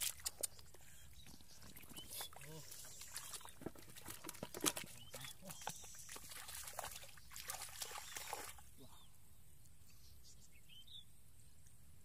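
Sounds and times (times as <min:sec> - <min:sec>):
faint bird chirps: 0:00.4 - 0:03.6, 0:04.8 - 0:11.7
hands splashing in muddy water: 0:01.6 - 0:08.6.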